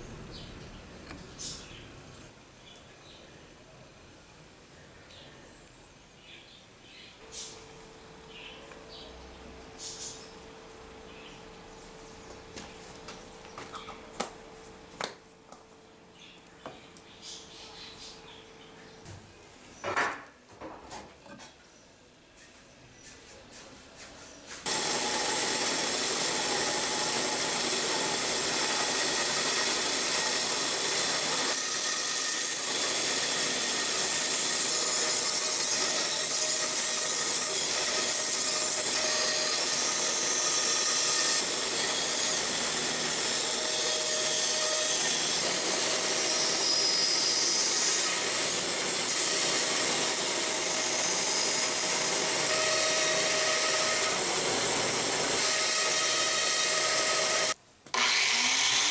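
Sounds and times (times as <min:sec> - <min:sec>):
band saw cutting: 0:24.6 - 0:58.9.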